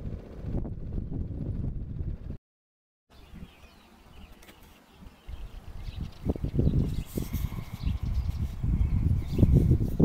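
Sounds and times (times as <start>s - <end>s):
wind buffeting microphone: 0.0s - 2.4s, 3.2s - 3.7s, 5.0s - 10.0s
faint bird chirps: 3.2s - 9.6s.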